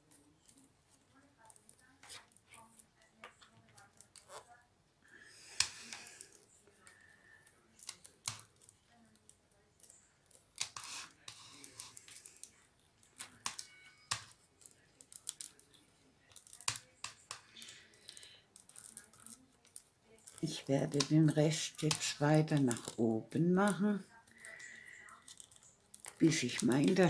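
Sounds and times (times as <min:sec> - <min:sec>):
paper tubes clicking: 0:09.8 - 0:27.0
paper tubes rustling: 0:10.7 - 0:13.4, 0:17.5 - 0:27.0.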